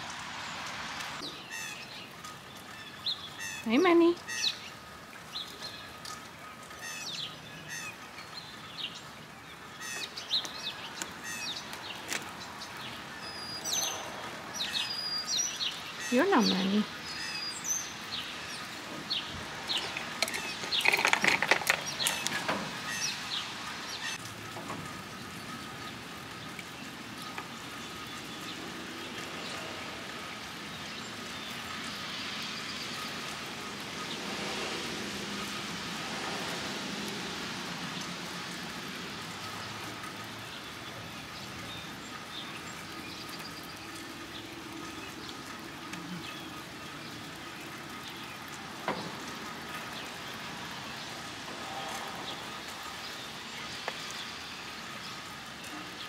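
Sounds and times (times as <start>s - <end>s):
traffic on wet street: 0.0s - 56.0s
squirrel rummaging in nuts: 19.8s - 22.4s.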